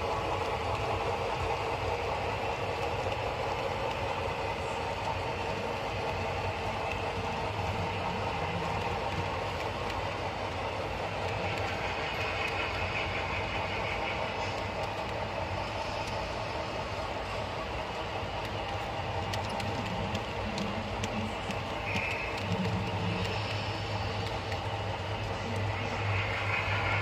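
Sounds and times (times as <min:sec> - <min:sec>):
model train running on track: 0:00.0 - 0:27.0
faint wheel clicks: 0:14.4 - 0:25.8.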